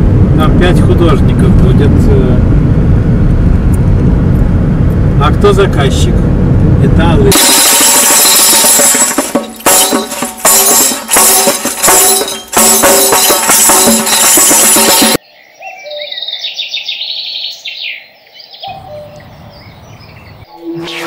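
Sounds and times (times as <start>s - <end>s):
low rumble: 0.0s - 7.4s
busy music with percussive beats: 7.3s - 15.2s
birds chirping: 15.2s - 21.0s.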